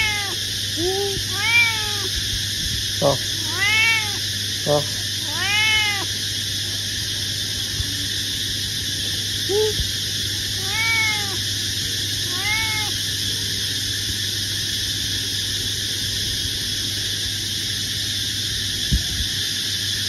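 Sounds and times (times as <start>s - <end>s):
cat meowing: 0.0s - 2.2s, 3.0s - 4.3s, 5.2s - 6.2s, 10.6s - 11.4s, 12.2s - 13.0s.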